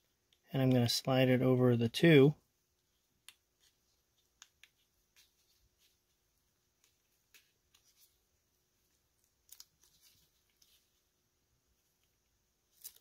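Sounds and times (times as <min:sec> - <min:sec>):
gloved hands rustling: 0:02.6 - 0:13.0.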